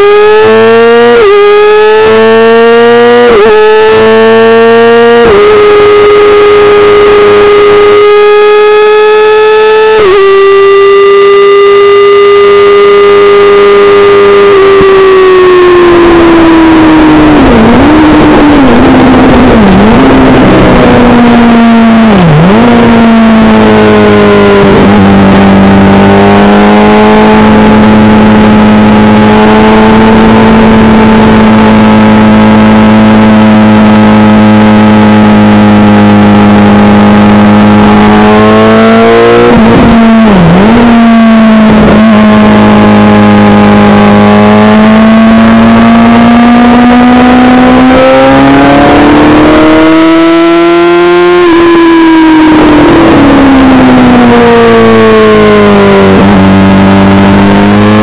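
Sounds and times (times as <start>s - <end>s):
motorcycle engine: 0.0s - 58.0s
wind noise: 14.5s - 45.5s, 51.4s - 58.0s.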